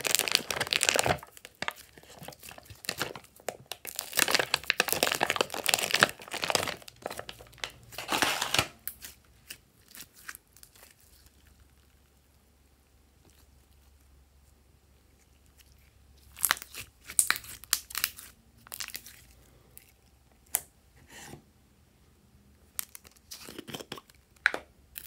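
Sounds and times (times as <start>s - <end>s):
slime crackling and popping: 0.0s - 11.6s, 16.2s - 19.3s.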